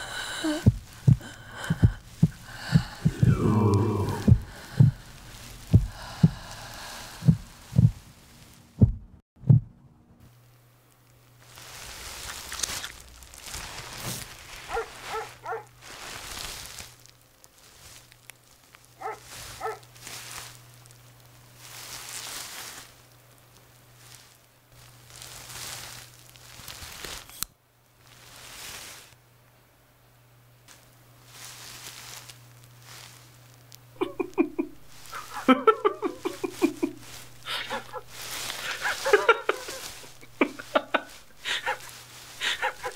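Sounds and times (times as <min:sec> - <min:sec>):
heavy breaths: 0:00.0 - 0:08.1, 0:34.8 - 0:42.9
steady low hum: 0:00.0 - 0:26.5, 0:29.2 - 0:42.9.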